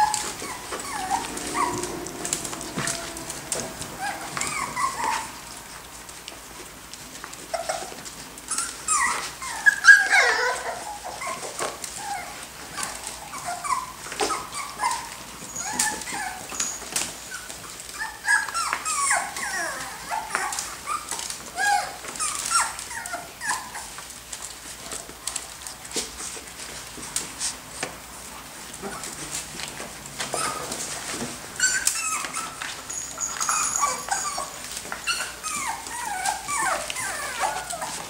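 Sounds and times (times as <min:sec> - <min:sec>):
puppies yelping and whining: 0:00.0 - 0:06.0, 0:07.5 - 0:24.0, 0:30.2 - 0:38.0.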